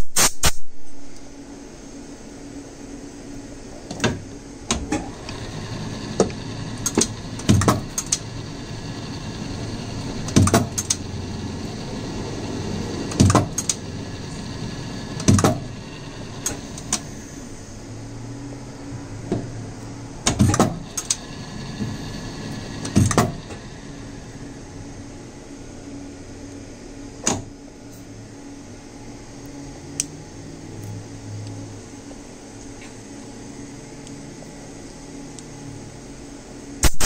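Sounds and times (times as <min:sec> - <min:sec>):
lathe tooling clunks: 0:04.7 - 0:17.1, 0:20.2 - 0:23.8
metal lathe humming: 0:05.0 - 0:27.1.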